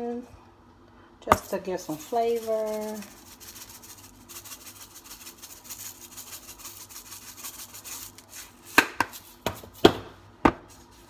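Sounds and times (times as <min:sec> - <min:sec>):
spice jar rattling: 0:01.4 - 0:09.4.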